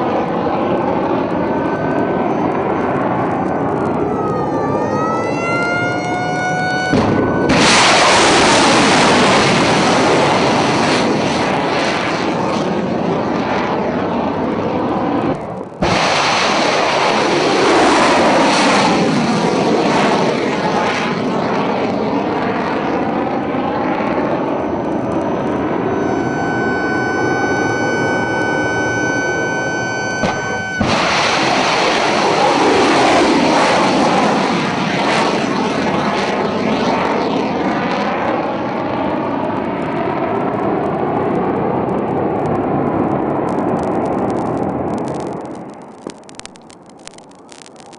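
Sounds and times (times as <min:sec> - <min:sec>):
high whistling tone: 0:01.6 - 0:07.6, 0:24.6 - 0:31.1
rocket booster roar: 0:05.8 - 0:39.8.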